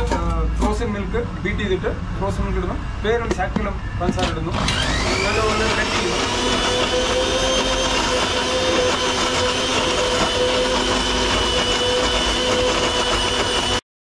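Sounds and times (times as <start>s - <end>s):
blender motor whining: 4.2s - 13.8s.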